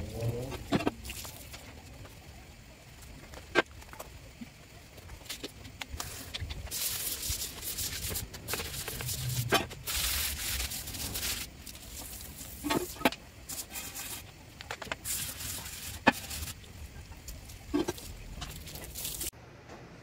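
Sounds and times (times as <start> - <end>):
hose running water on tiles: 4.9 - 19.3
brush scrubbing wet metal: 5.1 - 19.3.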